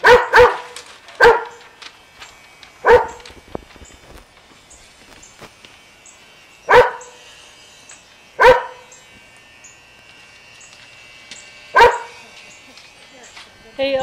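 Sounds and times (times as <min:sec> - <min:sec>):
dog barking: 0:00.0 - 0:01.6, 0:02.8 - 0:03.3, 0:06.7 - 0:07.2, 0:08.4 - 0:08.8, 0:11.8 - 0:12.2
electric hair clippers buzzing: 0:00.0 - 0:14.0.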